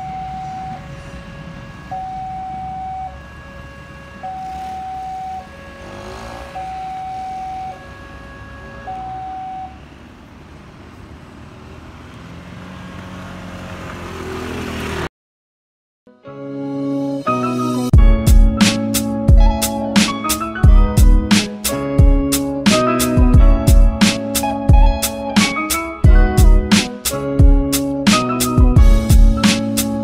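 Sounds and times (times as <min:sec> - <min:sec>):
level crossing two-tone alarm: 0:00.0 - 0:09.8
low engine rumble of traffic: 0:00.0 - 0:15.1, 0:18.0 - 0:30.0.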